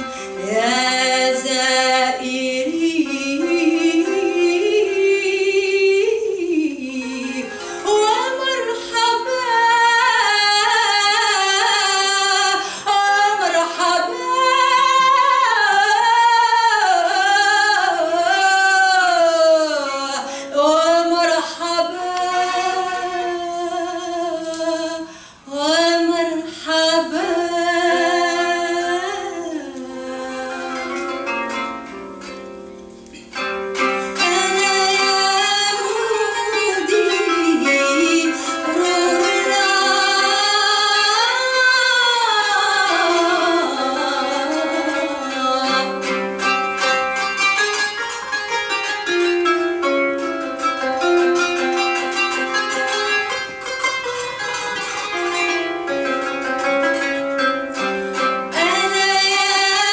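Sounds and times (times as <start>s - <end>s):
woman singing: 0.0s - 31.4s, 34.0s - 46.5s, 58.5s - 59.9s
plucked zither: 0.0s - 59.9s.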